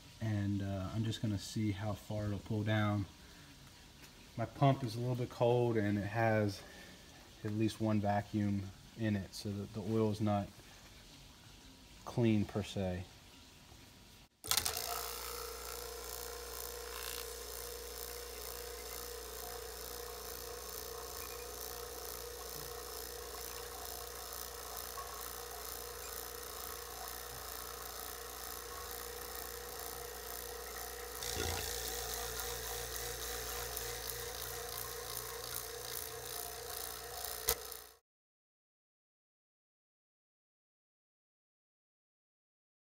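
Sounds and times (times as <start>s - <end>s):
vacuum pump humming: 14.4s - 38.0s.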